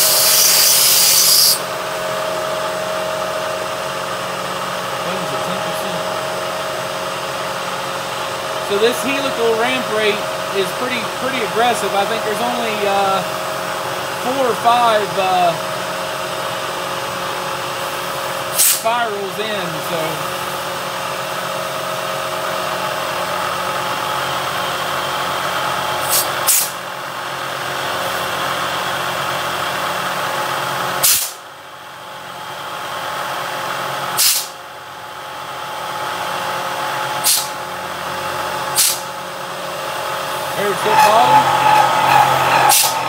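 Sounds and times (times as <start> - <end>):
sharp hisses of spray: 0.0 - 1.6
milling machine cutting aluminium: 40.3 - 43.0.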